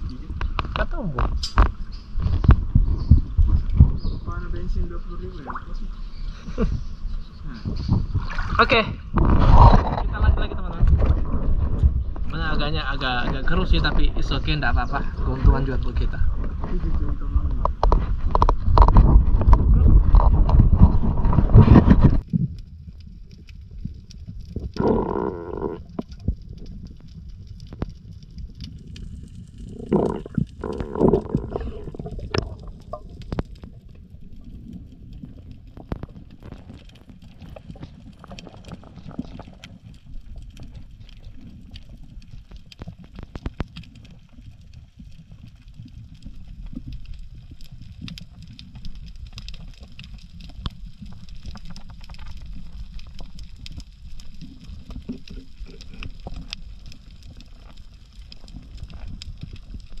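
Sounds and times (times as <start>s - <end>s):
faint underwater clicks and crackles: 0.0s - 60.0s
low underwater rumble: 0.0s - 60.0s
water swirling: 23.0s - 60.0s.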